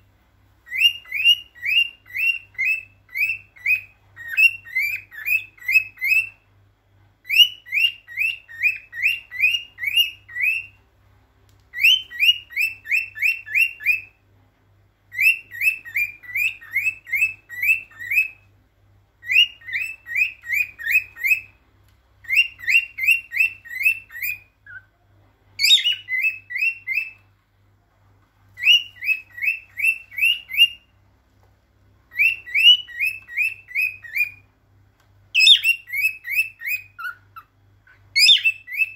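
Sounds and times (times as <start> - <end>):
cockatiel whistled chirps: 0.6 - 6.4, 7.2 - 10.8, 11.7 - 14.2, 15.1 - 18.5, 19.2 - 21.6, 22.2 - 24.9, 25.6 - 27.3, 28.6 - 31.0, 32.1 - 34.5, 35.4 - 38.9.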